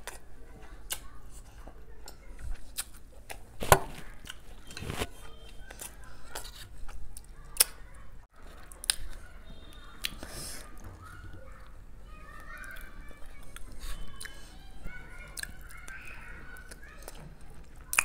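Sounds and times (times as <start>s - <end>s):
chewing mouth sounds: 0.0s - 3.5s, 15.2s - 16.0s, 16.6s - 18.0s.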